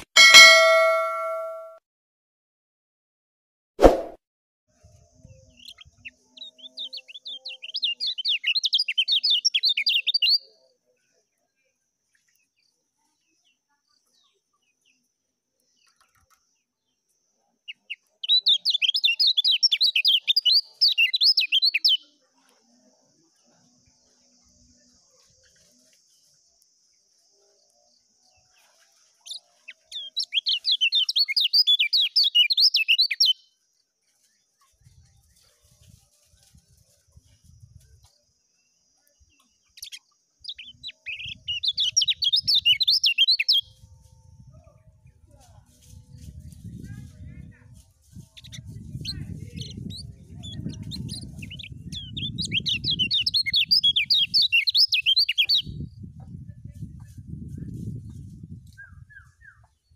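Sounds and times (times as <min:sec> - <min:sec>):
bird singing rapid chattering notes: 0:05.6 - 0:10.4, 0:18.0 - 0:22.0, 0:29.3 - 0:33.4, 0:39.4 - 0:43.7, 0:48.4 - 0:55.8.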